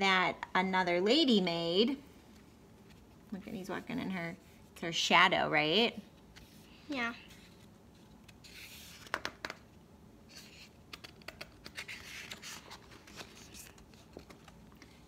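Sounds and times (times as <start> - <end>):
paper page rustling: 6.2 - 9.4, 10.3 - 15.0.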